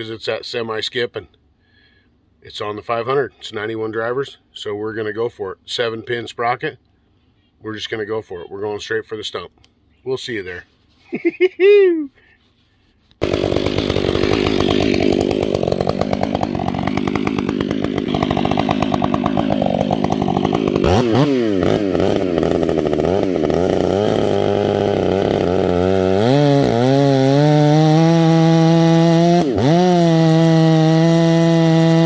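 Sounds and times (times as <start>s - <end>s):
chainsaw revving and cutting wood: 13.2s - 32.0s.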